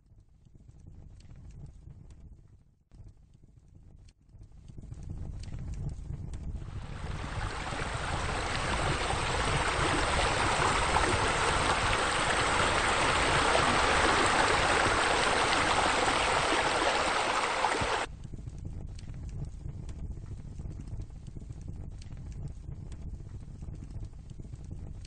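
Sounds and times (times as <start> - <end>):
low rumble: 5.8 - 18.0
rushing water: 6.7 - 18.1.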